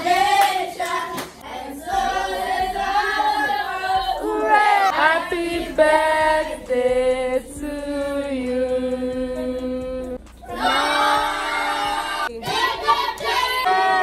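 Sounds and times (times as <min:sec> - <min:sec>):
group singing a celebration song: 0:00.0 - 0:14.0.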